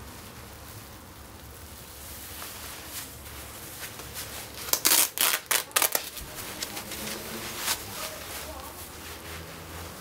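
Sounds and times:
fabric rustling: 0:00.0 - 0:10.0
hook-and-loop fastener ripping: 0:04.5 - 0:06.7.

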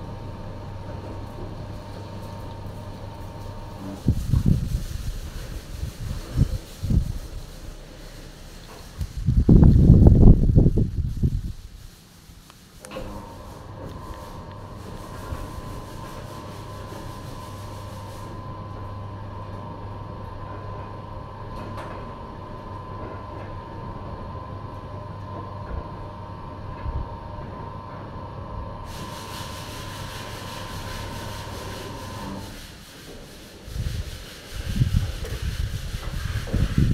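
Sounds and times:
low rumbling noise: 0:00.0 - 0:12.0
sliding roof motor humming: 0:00.0 - 0:12.0, 0:12.7 - 0:36.9.

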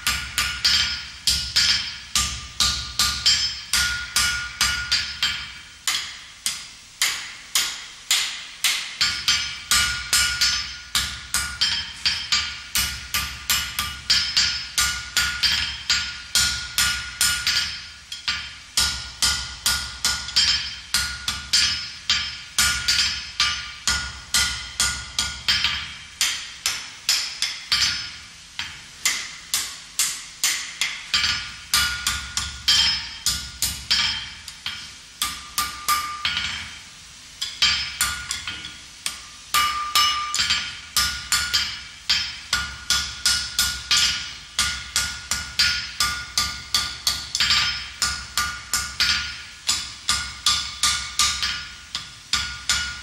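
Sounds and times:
hammer striking iron on anvil: 0:00.0 - 0:53.0.

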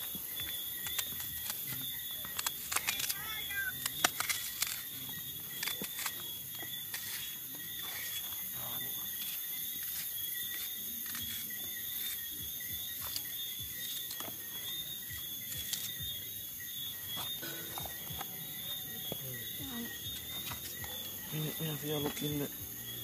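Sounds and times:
crickets chirring: 0:00.0 - 0:23.0
small crackles and pops: 0:00.8 - 0:04.8.

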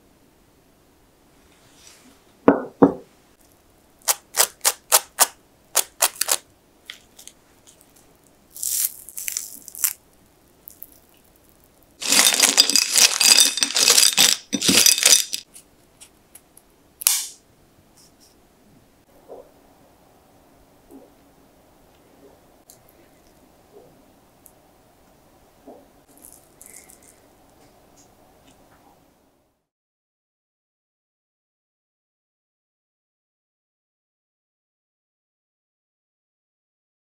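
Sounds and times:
plate knocking on wooden board: 0:02.5 - 0:03.1
crisp chips snapping and crunching: 0:04.0 - 0:15.4.

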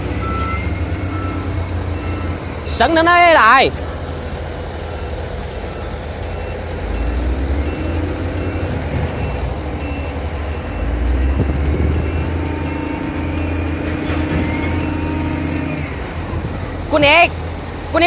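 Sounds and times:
excavator engine and hydraulics: 0:00.0 - 0:18.0
short high warning beeps: 0:00.2 - 0:02.8, 0:04.1 - 0:15.8.

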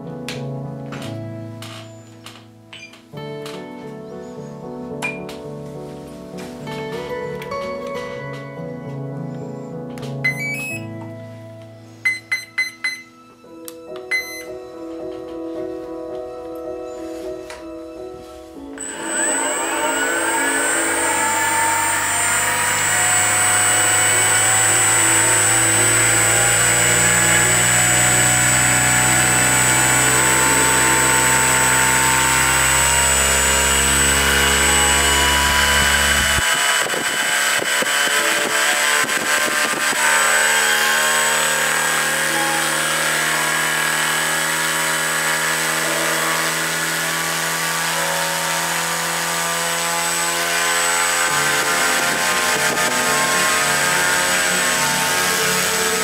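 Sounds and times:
electric motor propeller whine: 0:18.8 - 0:56.0.

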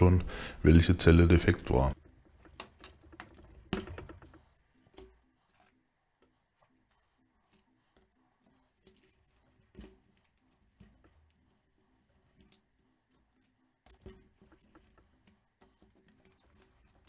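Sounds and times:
plastic and lead plates knocking: 0:01.9 - 0:04.5.

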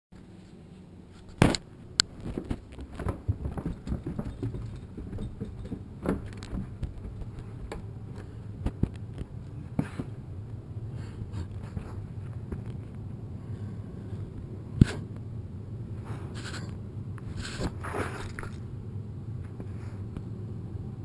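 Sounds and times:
footsteps on carpeted stairs: 0:02.2 - 0:10.2.

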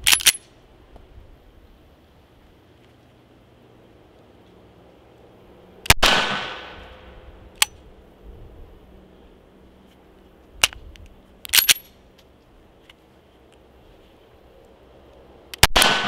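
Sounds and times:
pistol slide clacking: 0:00.0 - 0:00.5, 0:10.6 - 0:11.9
pistol gunshot with echo: 0:05.9 - 0:06.8, 0:15.6 - 0:16.0.

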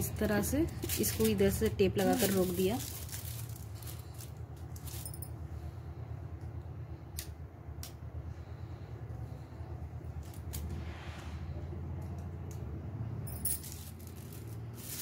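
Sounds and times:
aluminium foil crinkling: 0:00.0 - 0:05.2, 0:13.6 - 0:15.0
steady low hum: 0:00.0 - 0:15.0.

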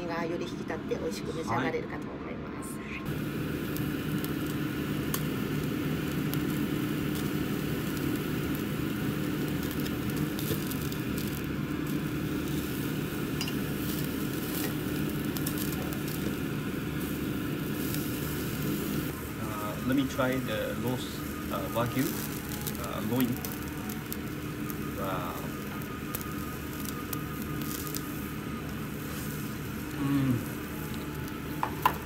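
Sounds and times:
steady low hum: 0:00.0 - 0:32.0
meat sizzling on a grill: 0:03.1 - 0:32.0.

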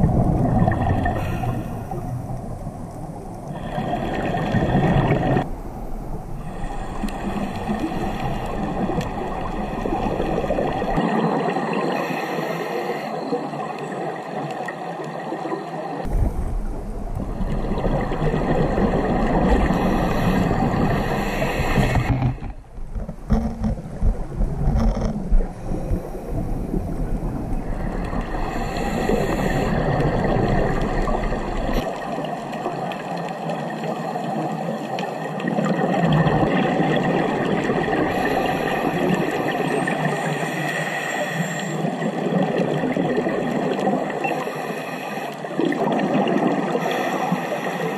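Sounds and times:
bubbles gurgling: 0:00.0 - 0:02.2, 0:03.6 - 0:05.5, 0:07.4 - 0:12.0, 0:16.0 - 0:21.1, 0:23.9 - 0:33.8, 0:35.3 - 0:40.4, 0:42.0 - 0:44.3, 0:45.6 - 0:46.9
underwater rush and hum: 0:00.0 - 0:47.9.

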